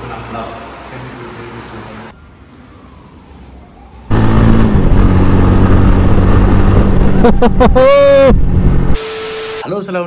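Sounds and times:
motorcycle engine running: 4.1s - 7.5s
wind rush: 4.2s - 9.0s.

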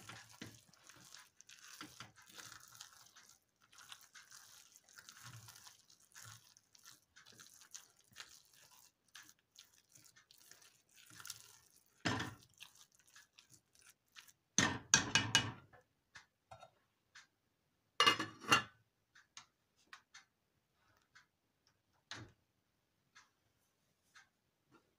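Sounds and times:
spoon stirring thick porridge: 0.0s - 15.7s
spoon knocking against pot: 14.6s - 15.7s.

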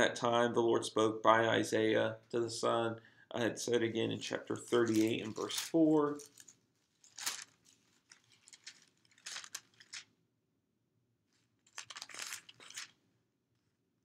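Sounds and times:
paper pages rustling: 4.6s - 10.1s, 11.4s - 13.0s.

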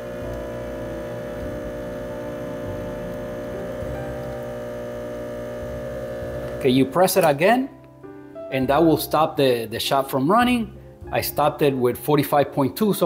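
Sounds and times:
espresso machine pump humming: 0.0s - 7.3s.

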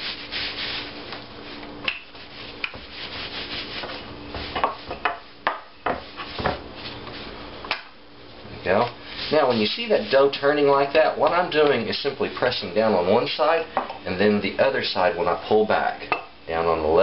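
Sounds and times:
rolling pin rubbing on dough: 0.0s - 5.0s, 5.9s - 7.3s, 9.0s - 12.2s
rolling pin knocking on board: 4.4s - 6.6s.

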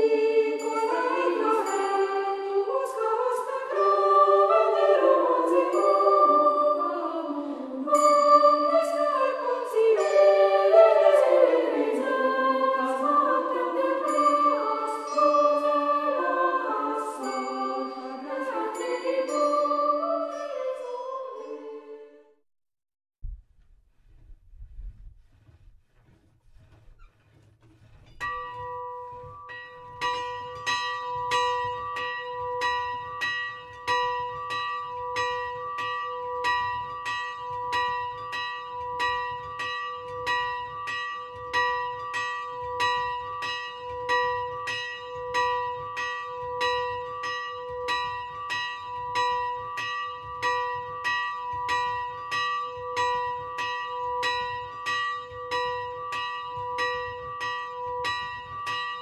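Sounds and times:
church bell ringing: 28.2s - 59.0s.

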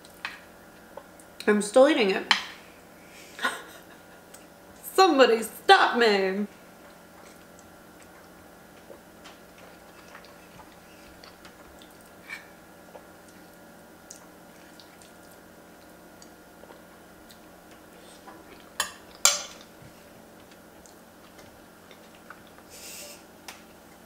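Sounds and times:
faint chewing: 6.8s - 23.0s.

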